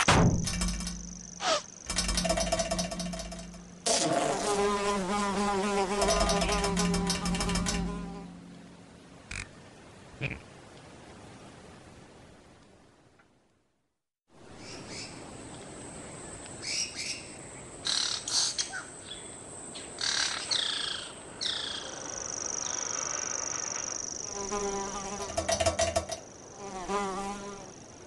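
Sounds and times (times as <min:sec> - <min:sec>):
wavering buzz: 0:00.3 - 0:09.4.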